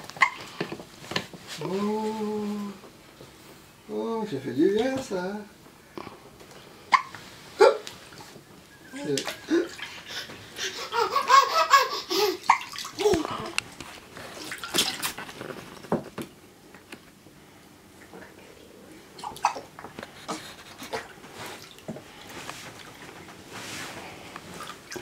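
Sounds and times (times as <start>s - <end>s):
water splashing and dripping: 12.5s - 13.6s, 14.4s - 15.3s.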